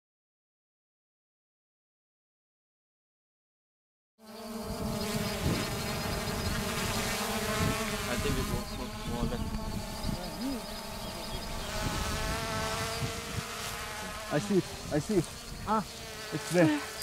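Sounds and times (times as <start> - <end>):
drone propellers buzzing: 4.3 - 17.0.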